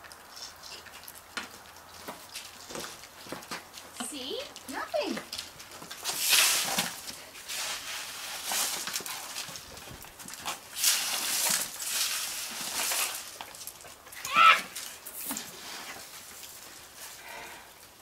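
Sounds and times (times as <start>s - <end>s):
puppy noises: 0.0s - 6.1s
broom sweeping on patio: 6.0s - 9.7s, 10.4s - 13.7s, 14.4s - 17.4s.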